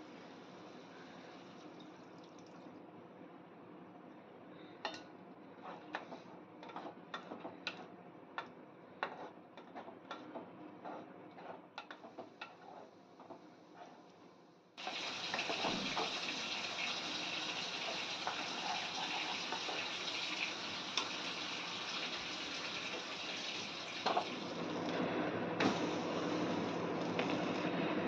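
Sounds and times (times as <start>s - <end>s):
wooden spatula scraping a pan: 9.0s - 10.0s, 10.8s - 13.0s.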